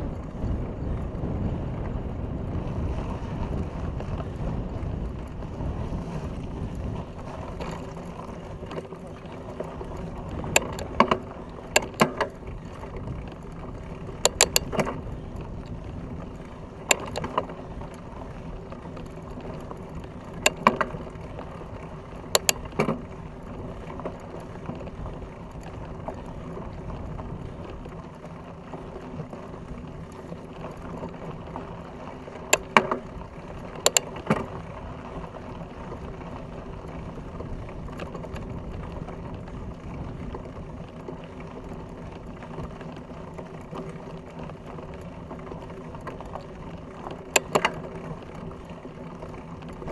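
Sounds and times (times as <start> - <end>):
wind noise: 0.0 - 31.5
tyres rumbling on gravel: 0.0 - 49.9.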